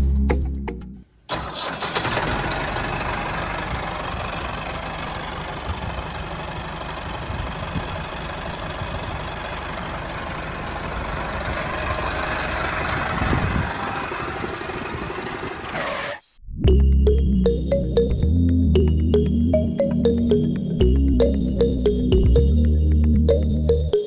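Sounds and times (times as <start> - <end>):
tractor engine running: 1.3 - 16.2.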